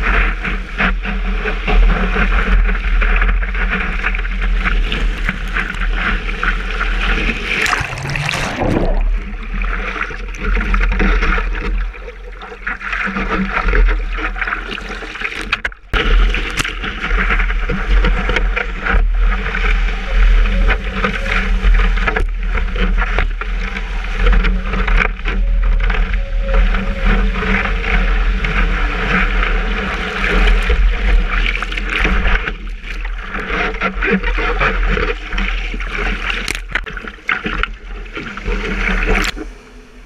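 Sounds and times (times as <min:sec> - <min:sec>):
water rushing and splashing: 0:00.0 - 0:40.0
steady low rumble: 0:02.4 - 0:14.5.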